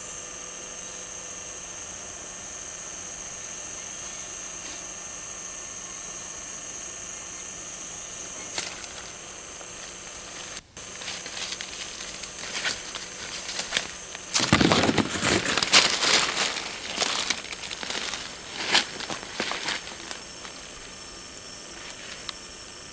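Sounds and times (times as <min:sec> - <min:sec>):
steady high hiss: 0:03.1 - 0:22.9
leaves and undergrowth rustling: 0:07.3 - 0:22.6.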